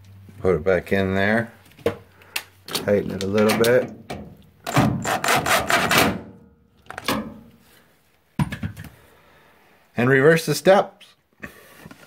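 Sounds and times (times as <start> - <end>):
screwdriver scraping and grinding: 5.0 - 6.0.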